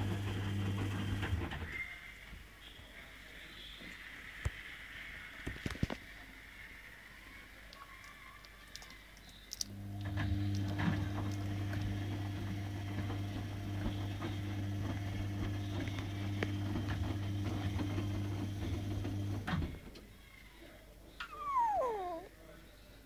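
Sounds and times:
faint clicks and taps: 7.7 - 9.7.

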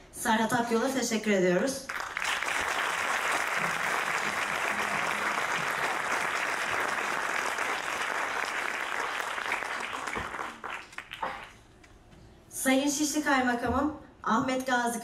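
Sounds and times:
audience applauding: 1.9 - 11.6.

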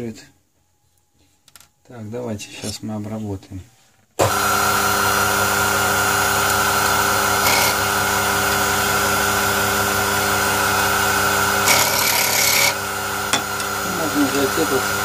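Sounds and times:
lathe motor humming: 4.2 - 15.0.

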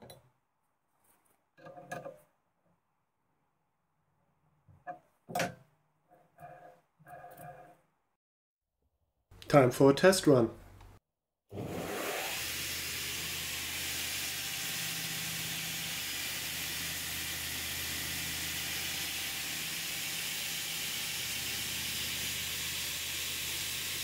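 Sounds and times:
sanding belt hissing: 12.0 - 24.0.

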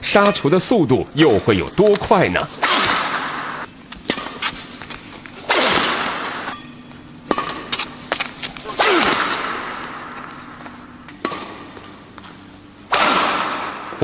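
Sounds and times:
whip-like cracks with echo: 2.6 - 4.4, 5.5 - 6.5, 8.7 - 10.2, 12.9 - 14.0.

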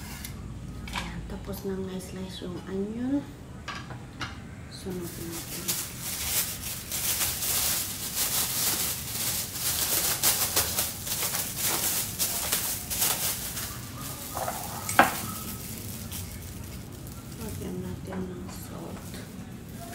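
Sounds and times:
plastic gloves crinkling: 4.8 - 19.9.

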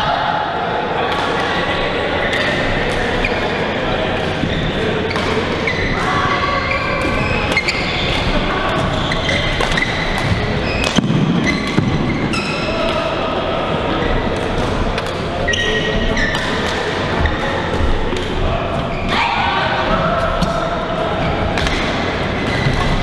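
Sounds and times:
background chatter: 0.0 - 23.0
shoes squeaking on court floor: 3.1 - 12.7, 15.4 - 18.1
rackets striking shuttlecock: 6.8 - 13.1, 14.2 - 18.9, 21.5 - 23.0.

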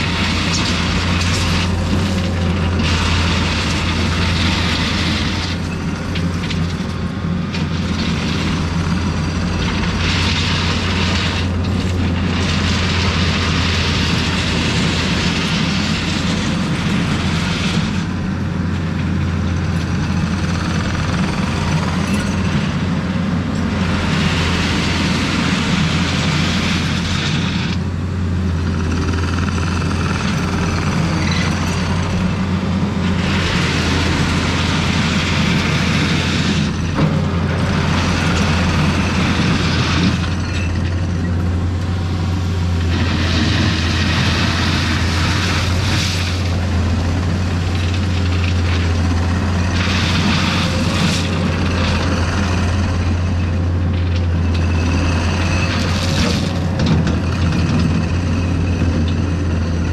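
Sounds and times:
diesel engine running under work: 0.0 - 59.9.

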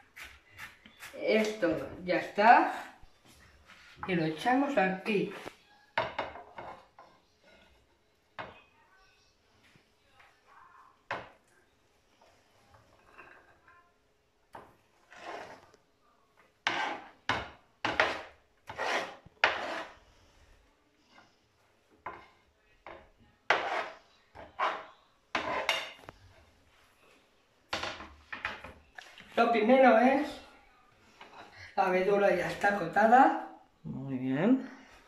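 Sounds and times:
knife scraping cutting board: 0.0 - 1.9, 15.0 - 15.6, 16.6 - 17.2, 17.9 - 20.1, 23.5 - 26.0.

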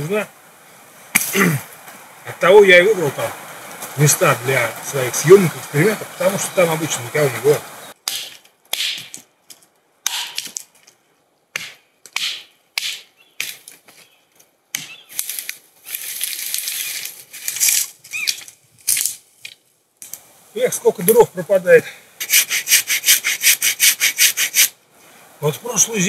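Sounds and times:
twigs crackling and snapping: 1.1 - 2.1, 8.0 - 20.3
rustling brush: 11.8 - 19.4, 22.2 - 25.9.

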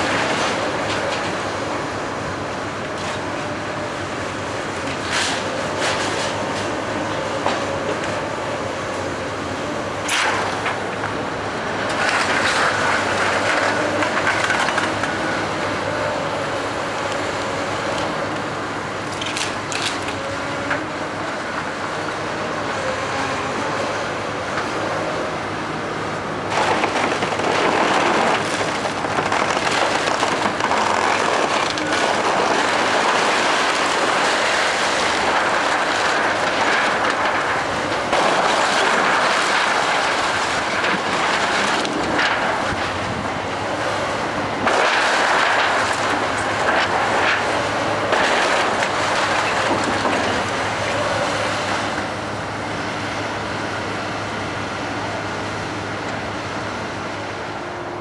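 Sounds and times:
excavator engine running: 0.0 - 58.0
debris crashing down: 26.5 - 42.9, 44.6 - 51.2
timber cracking: 26.5 - 43.0.

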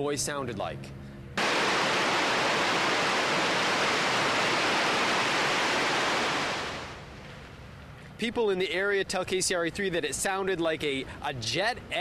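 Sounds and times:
high-pressure steam venting roar: 1.4 - 7.0.

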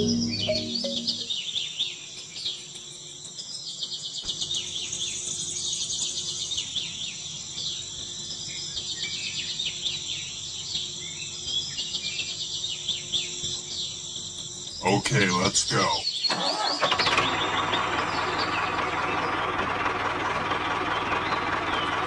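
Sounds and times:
insects trilling: 0.0 - 19.2
birds chirping: 0.0 - 22.0.

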